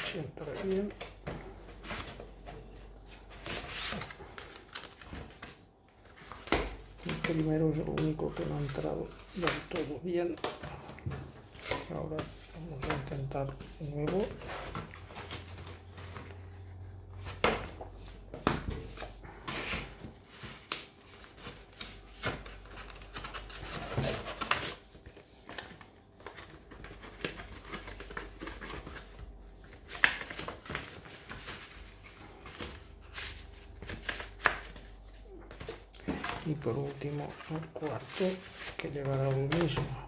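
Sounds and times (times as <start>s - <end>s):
paper and card rustling: 0.0s - 40.0s.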